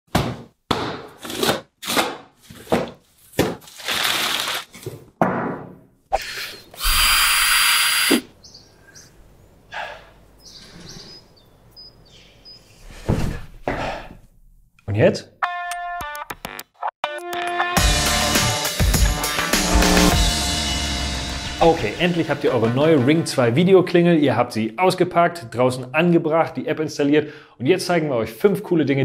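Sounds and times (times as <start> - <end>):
cordless drill running: 6.8 - 8.2.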